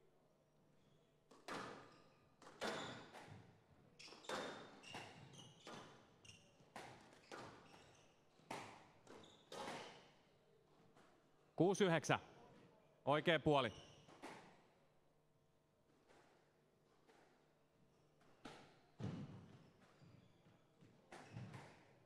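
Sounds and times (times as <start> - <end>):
shoes squeaking on court: 4.0 - 10.1, 18.7 - 21.6.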